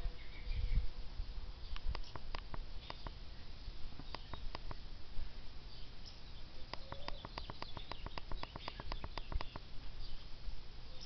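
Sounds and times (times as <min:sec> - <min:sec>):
birds chirping: 0:00.0 - 0:00.9, 0:01.6 - 0:11.0
rapid sharp clicking notes: 0:06.7 - 0:09.7.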